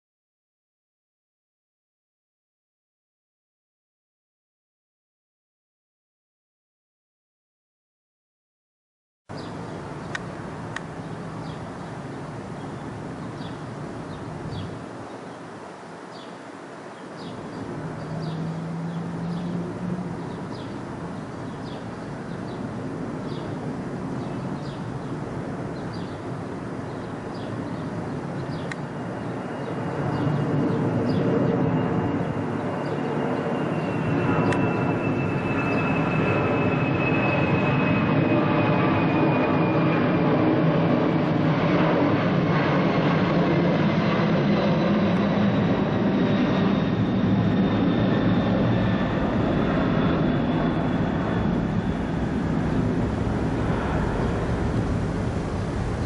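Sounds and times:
high jet whine falling in pitch: 9.3s - 56.0s
jet engine rumble overhead: 9.3s - 56.0s.

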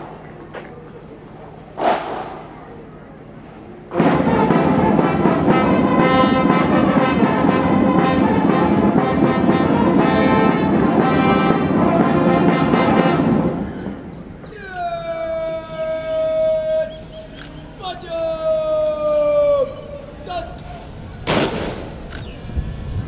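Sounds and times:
military brass band playing: 3.9s - 14.0s, 19.8s - 22.1s.

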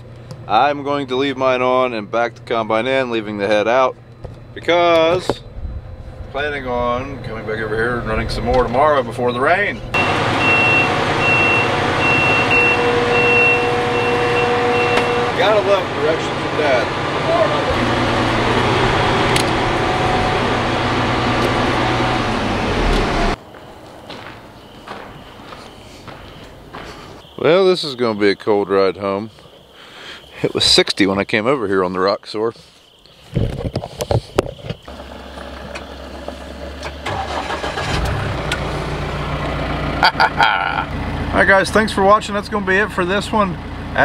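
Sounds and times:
engine and blower fan hum: 0.0s - 23.4s, 34.9s - 44.0s.

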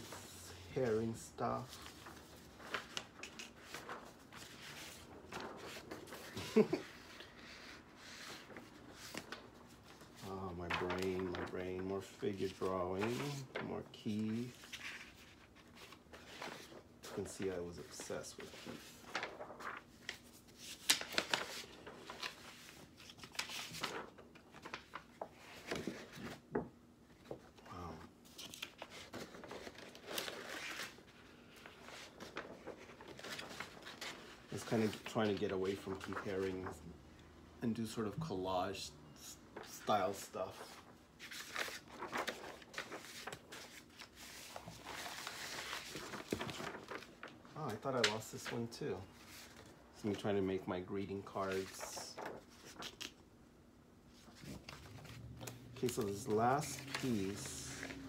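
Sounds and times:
paper sheets rustling: 0.0s - 36.9s, 37.7s - 53.2s, 54.1s - 58.0s
sharp paper snaps: 2.7s - 3.9s.

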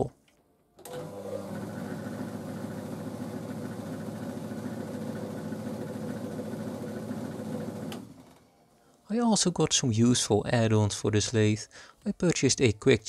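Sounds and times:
lathe motor humming: 0.8s - 8.1s.

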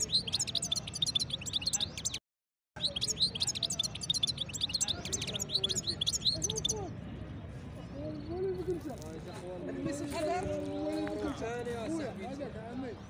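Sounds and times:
goldfinch chirping and trilling: 0.0s - 2.2s, 2.8s - 6.8s.

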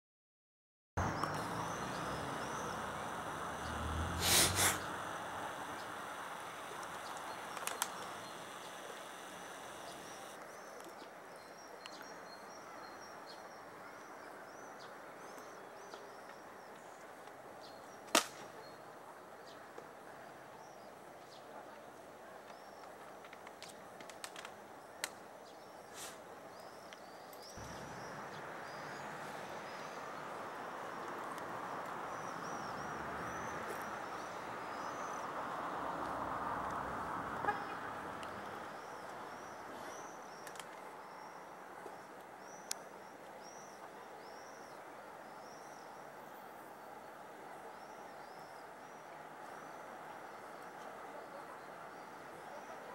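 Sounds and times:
steady hiss: 1.0s - 10.4s
small birds chirping: 1.0s - 36.8s
insects trilling: 1.1s - 10.4s
sharp clicks: 6.7s - 8.3s.

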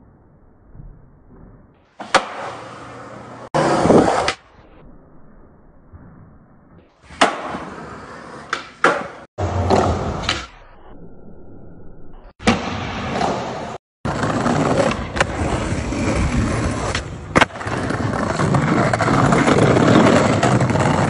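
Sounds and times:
skateboard popping and landing: 1.3s - 2.8s, 3.6s - 4.4s, 7.0s - 10.5s, 12.4s - 21.0s
skateboard wheels rolling: 1.3s - 4.4s, 7.0s - 10.6s, 12.4s - 21.0s.

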